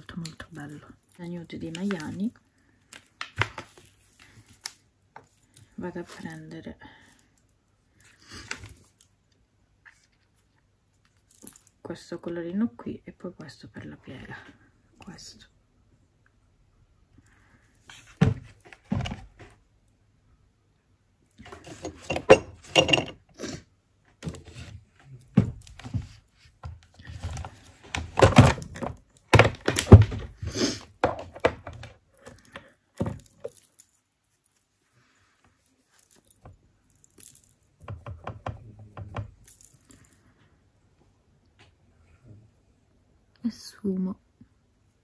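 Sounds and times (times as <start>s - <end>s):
makeup products knocking and rattling: 21.4s - 23.2s, 26.7s - 30.4s, 31.0s - 33.7s, 37.2s - 39.6s.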